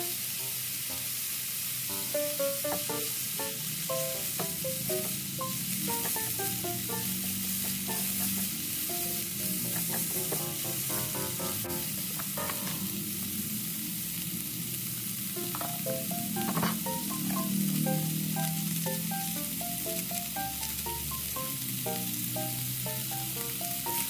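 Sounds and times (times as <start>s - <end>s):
vegetables sizzling in pan: 0.0s - 24.0s
spatula knocking against pan: 9.6s - 10.9s.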